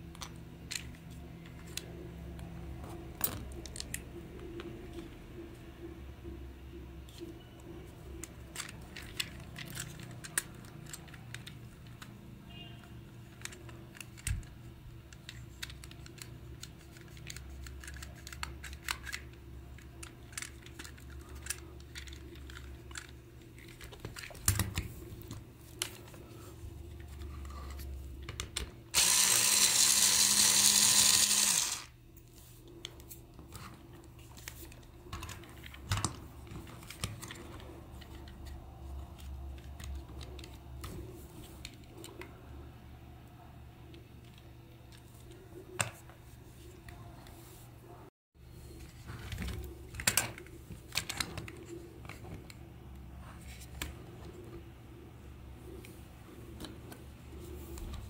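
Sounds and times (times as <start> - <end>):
plastic parts clicking and knocking: 8.0 - 12.2, 13.2 - 26.2, 49.2 - 52.6
electric screwdriver running: 29.0 - 31.9.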